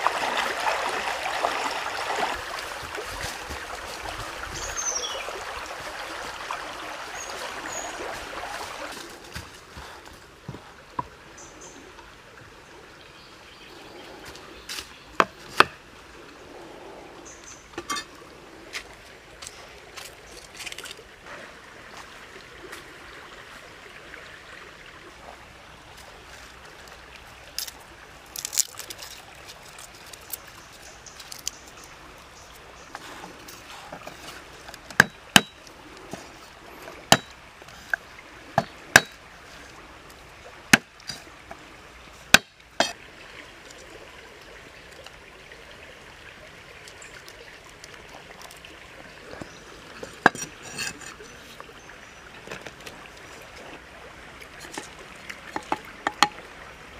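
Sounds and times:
stream rushing: 0.0 - 56.9
cleaver chopping on wooden block: 34.9 - 35.6, 37.1 - 37.3, 38.6 - 39.2, 42.3 - 43.0.

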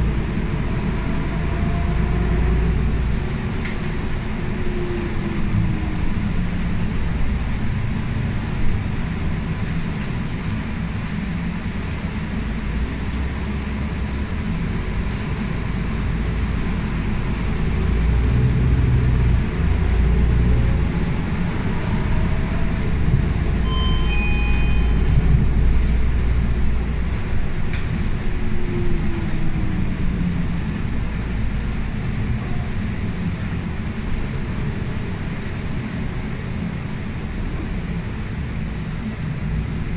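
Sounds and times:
bus engine rumble: 0.0 - 39.9
short high beeps: 23.6 - 25.3.

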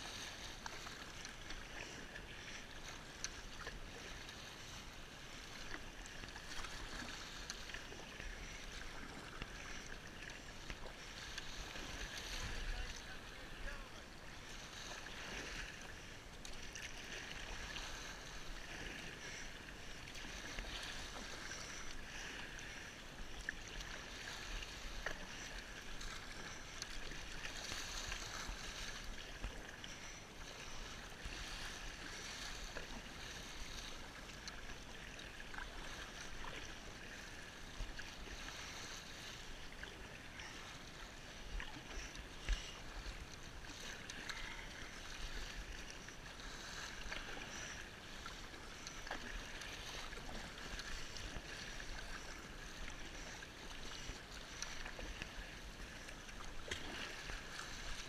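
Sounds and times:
water splashing against kayak hull: 0.0 - 58.0.

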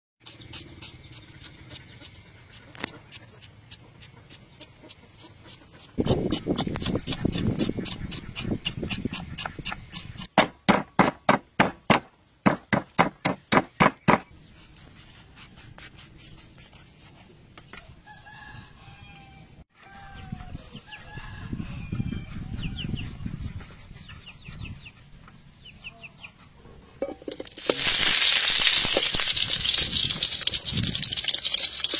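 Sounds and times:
knife scraping pig's trotter: 0.2 - 10.4, 19.8 - 21.4, 22.2 - 25.2.

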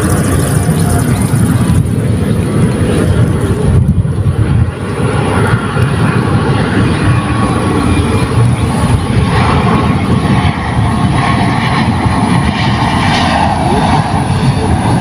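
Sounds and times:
wind buffeting microphone: 0.0 - 15.0.

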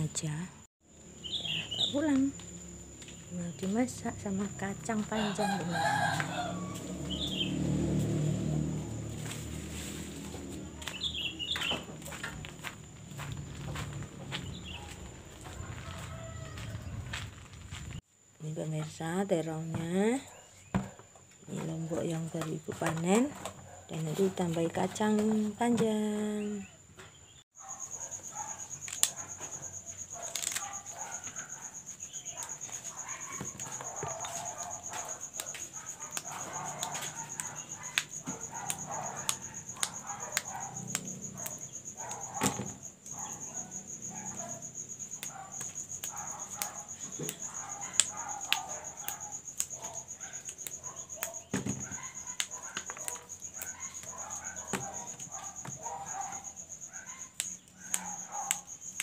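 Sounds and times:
crickets chirping: 0.0 - 59.0
beans snapping by hand: 28.8 - 29.2, 30.2 - 30.8, 34.1 - 42.5.

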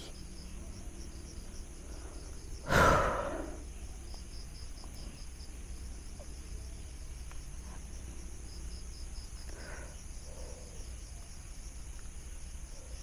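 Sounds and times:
crickets chirping: 0.0 - 13.0
person sighing exhale: 2.6 - 3.6.

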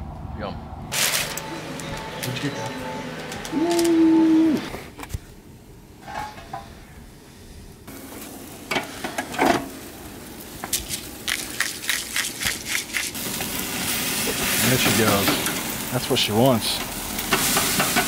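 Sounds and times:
food sizzling on a grill: 7.9 - 18.0
pans and utensils clinking: 17.3 - 18.0.

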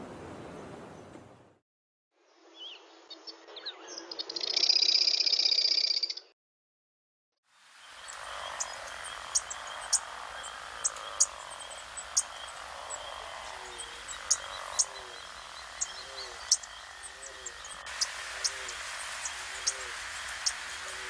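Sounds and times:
steady wetland hiss: 7.5 - 21.0.

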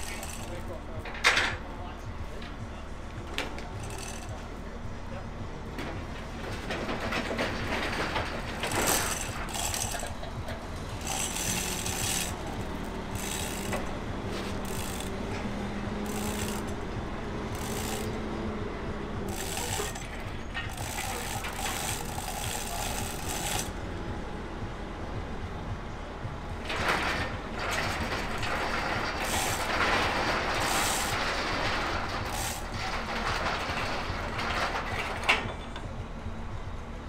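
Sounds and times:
pawl ratcheting: 0.0 - 0.7, 3.8 - 4.4, 8.4 - 18.2, 19.3 - 23.8, 26.6 - 35.6
chain rattling: 8.5 - 10.1, 11.0 - 13.9, 19.3 - 23.7.

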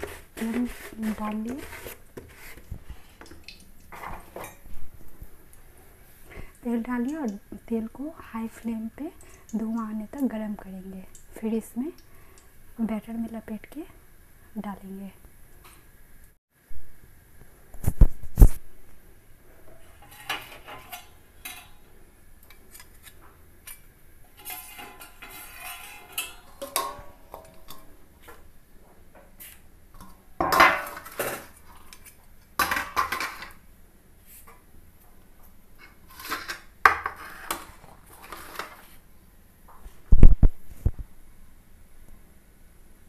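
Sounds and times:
metal pots and utensils clattering: 0.0 - 4.7, 19.7 - 21.9, 22.5 - 28.4, 30.0 - 33.6.

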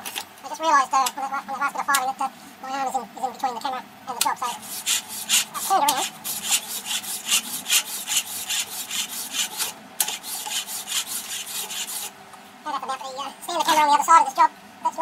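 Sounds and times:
file rasping on metal: 4.4 - 12.2.

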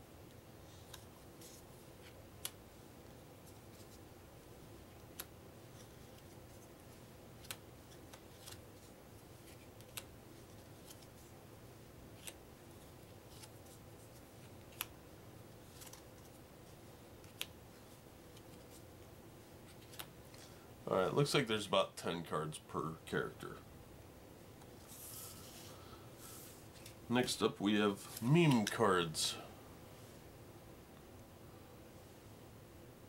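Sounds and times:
faint steady hum: 0.0 - 33.0.

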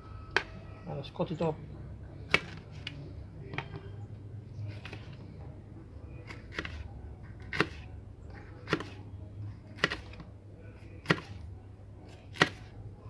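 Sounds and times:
knife slicing pepper: 6.2 - 6.8, 7.4 - 7.9, 8.6 - 9.0, 9.8 - 10.2, 11.0 - 11.4, 12.3 - 12.7.

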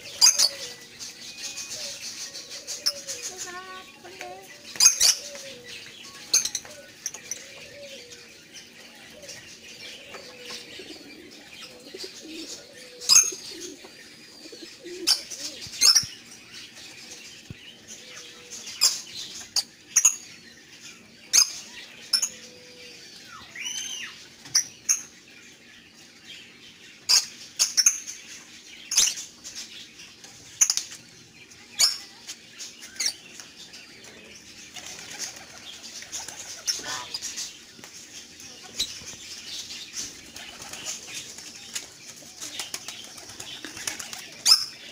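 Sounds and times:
lovebirds chirping shrilly: 0.0 - 25.4, 34.4 - 44.9.

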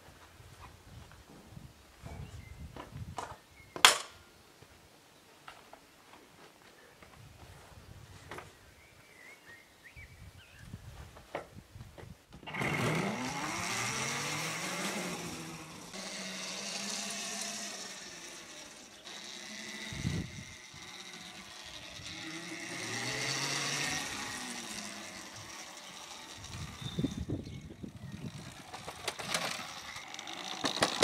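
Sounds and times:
electric motorbike motor whining: 12.4 - 31.0.

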